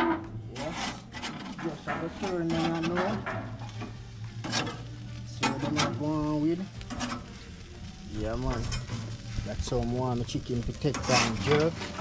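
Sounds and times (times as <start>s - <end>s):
chicken sizzling on grill: 0.4s - 12.0s.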